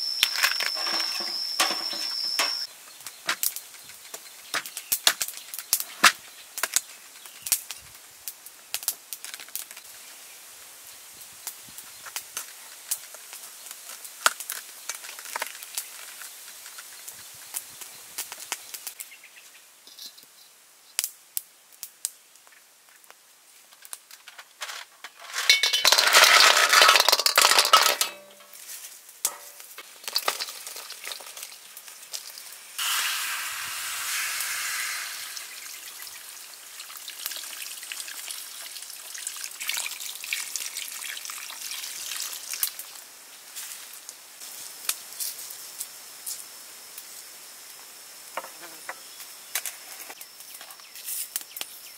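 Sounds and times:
snail shells clinking on metal: 25.0 - 28.6
liquid pouring into a pot: 30.0 - 42.8.

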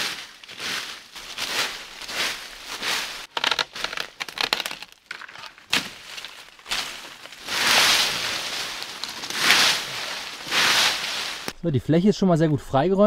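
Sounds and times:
continuous rustle of undergrowth: 0.0 - 4.5, 5.5 - 11.6
dry leaves and twigs crackling: 0.0 - 11.6
twig snapping: 3.3 - 7.4, 8.7 - 9.4.

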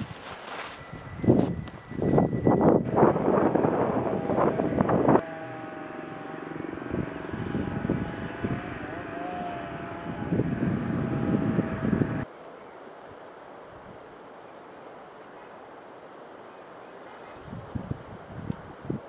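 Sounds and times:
loud rustling with crackles: 0.0 - 2.9
engine drone: 0.8 - 12.3.

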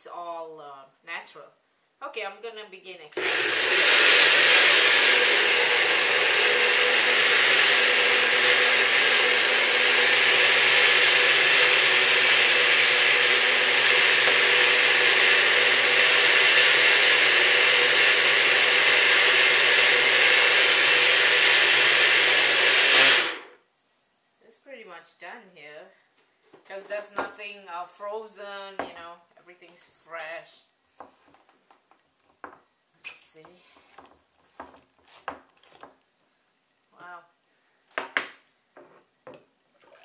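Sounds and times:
blender motor running: 3.2 - 23.6.

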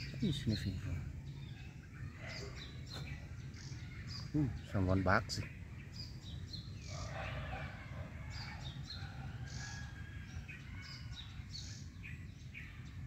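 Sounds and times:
small birds chirping: 0.0 - 13.0
faint dog barking: 2.1 - 3.1, 6.9 - 9.2.

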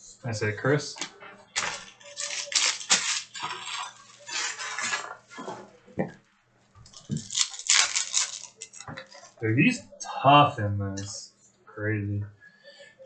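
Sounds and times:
trading cards rustling and sliding: 1.6 - 5.5.

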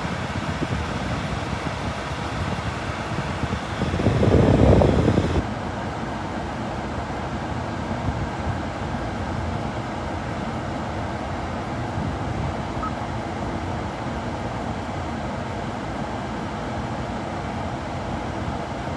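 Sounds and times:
brief faint tone: 12.8 - 13.1.

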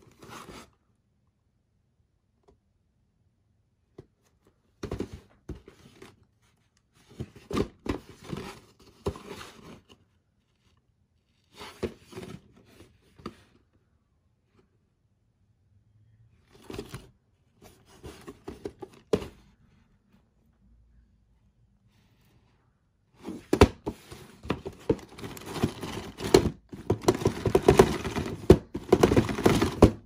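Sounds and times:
cardboard box handled: 16.6 - 19.5, 23.2 - 30.0.

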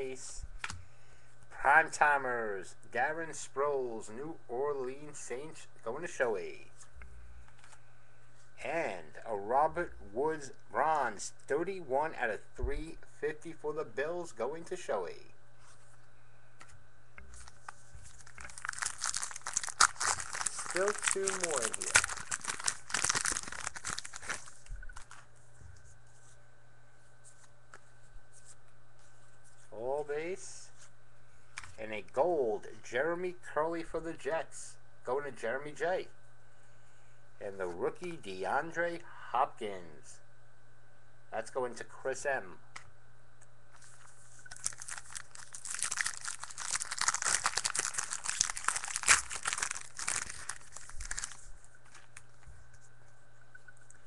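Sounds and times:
steady low hum: 0.0 - 54.0
cards being handled: 16.6 - 26.4, 43.7 - 52.9
card pack wrapper crinkling: 17.3 - 25.3, 43.8 - 52.8.

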